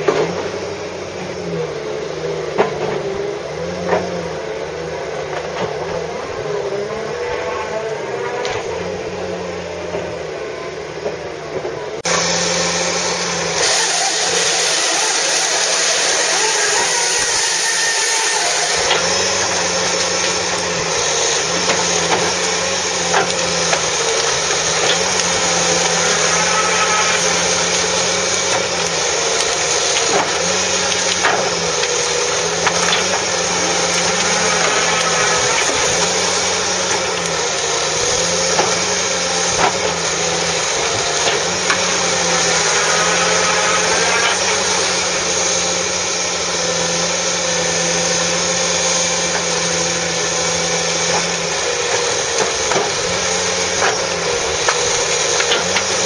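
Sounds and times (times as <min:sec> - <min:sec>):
diesel engine and hydraulics: 0:00.0 - 0:56.0
brash cracking and snapping: 0:18.7 - 0:45.3.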